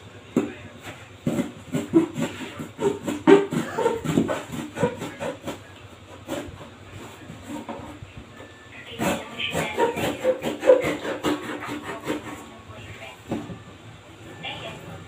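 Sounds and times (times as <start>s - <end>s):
knife sawing through cardboard: 1.2s - 7.9s, 8.9s - 12.5s.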